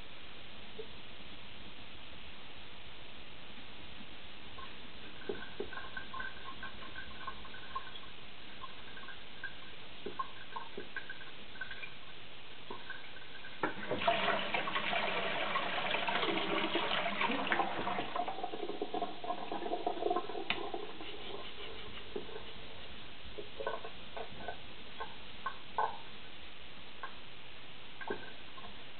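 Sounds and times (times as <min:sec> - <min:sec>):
knife rubbing on wet whetstone: 0:20.9 - 0:23.0.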